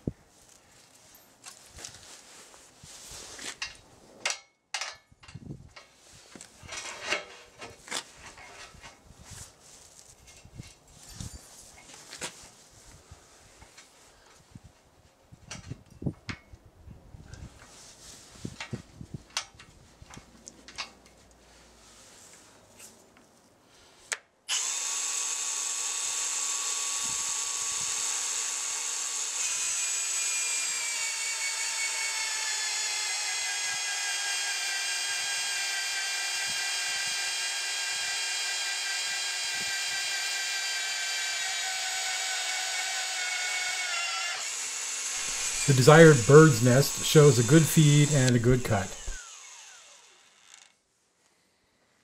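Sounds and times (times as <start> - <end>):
drill motor whining: 24.5 - 50.8.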